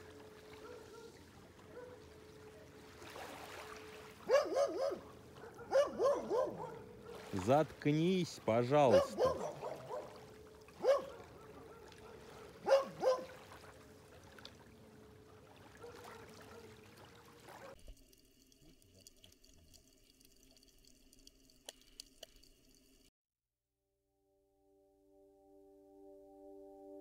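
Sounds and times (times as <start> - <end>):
small waves lapping: 0.0 - 18.0
dog barking: 0.6 - 2.1, 4.2 - 7.4, 8.9 - 10.2, 10.8 - 13.4, 15.7 - 16.8
sharp underwater clicks: 17.8 - 23.1.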